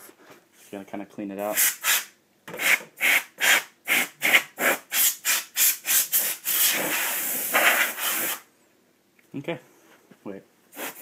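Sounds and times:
compressed air spray hissing: 1.5s - 8.5s, 10.7s - 11.0s.

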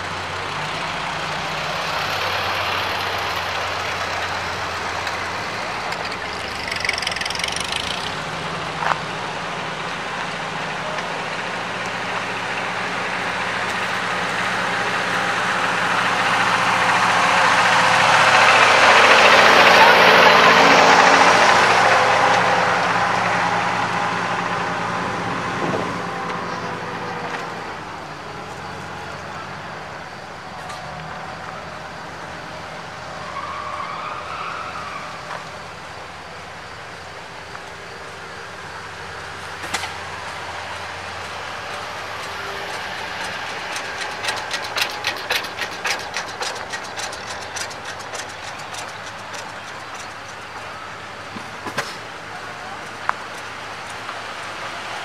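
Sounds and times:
idling traffic rumble: 0.0s - 55.0s
tractor engine pulling away: 0.0s - 55.0s
engine ticking knock: 3.9s - 8.3s, 41.2s - 51.9s.

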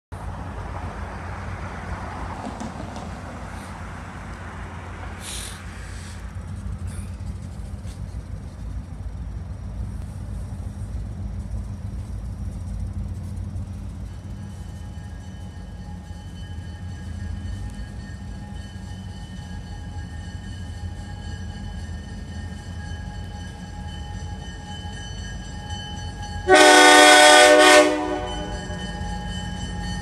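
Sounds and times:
diesel locomotives rumbling: 0.1s - 30.0s
air hiss: 5.2s - 7.2s.

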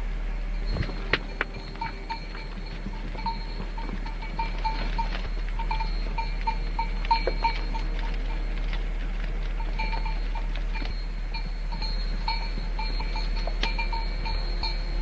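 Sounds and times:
steady low hum: 0.0s - 15.0s
goat bells clinking: 0.3s - 15.0s.

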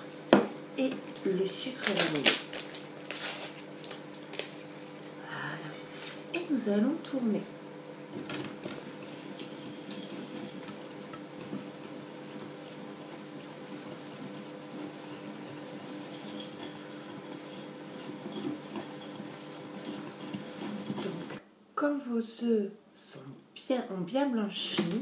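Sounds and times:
steady low hum: 3.8s - 21.4s
whisk scraping glass bowl: 8.5s - 21.4s.

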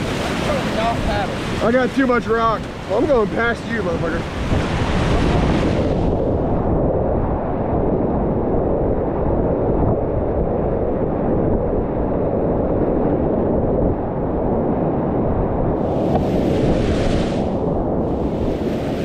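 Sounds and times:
muffled river whitewater rushing: 0.0s - 7.8s, 15.8s - 19.0s.

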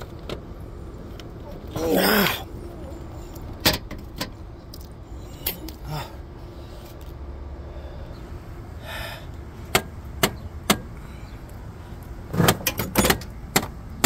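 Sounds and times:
low steady rumble: 0.0s - 14.0s
sharp metal knocks and clicks: 9.7s - 10.9s, 12.3s - 13.8s.

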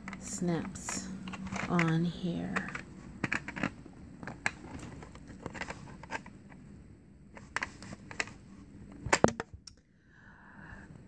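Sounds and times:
faint low hum: 0.0s - 11.0s
plastic toy parts clicking: 1.2s - 4.8s.

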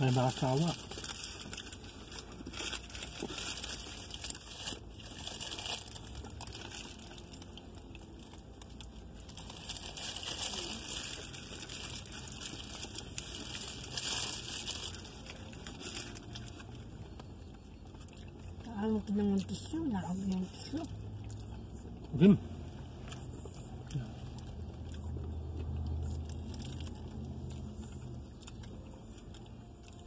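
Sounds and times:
food packaging crinkling: 0.0s - 18.5s, 24.6s - 30.0s
faint low hum: 0.0s - 30.0s.

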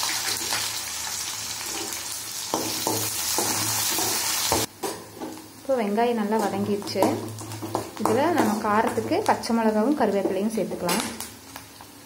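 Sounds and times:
onions sizzling in hot oil: 0.0s - 12.0s
spoon stirring against pan: 1.6s - 5.6s, 6.2s - 11.0s.

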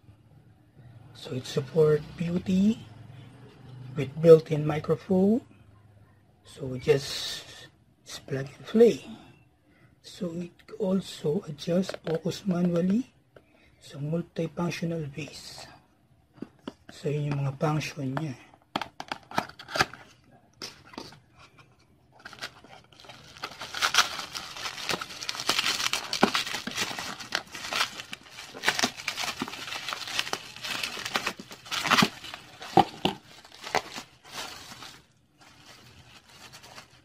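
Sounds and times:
plastic packaging crinkling: 22.2s - 37.0s.

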